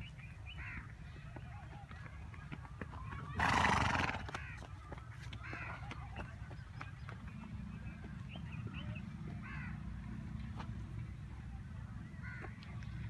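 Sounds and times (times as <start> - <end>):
horse call: 3.2 - 4.4.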